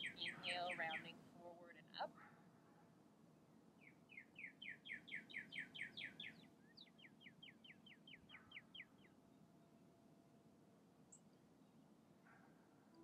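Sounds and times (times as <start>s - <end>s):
songbird singing: 0.0s - 2.3s, 3.8s - 9.9s, 11.1s - 13.0s.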